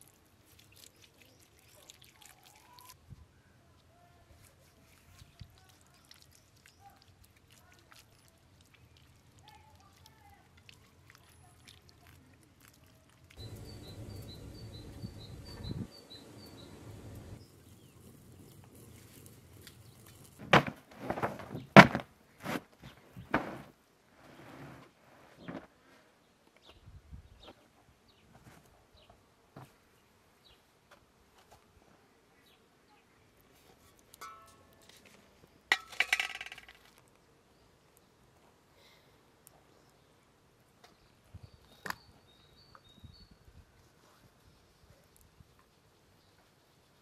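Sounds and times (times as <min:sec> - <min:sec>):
faint bird chirps: 0:13.4 - 0:18.0
carpet flapping and thumping: 0:20.4 - 0:23.7.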